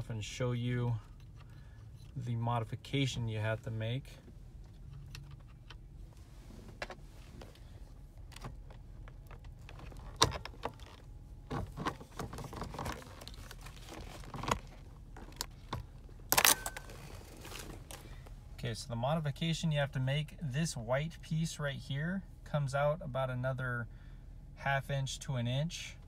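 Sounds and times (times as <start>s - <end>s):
clicks and rattles of handled parts: 4.6s - 5.8s.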